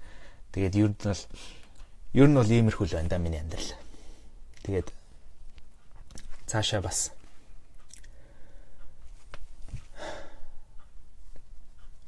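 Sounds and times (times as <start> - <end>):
man sighing: 10.0 - 10.6.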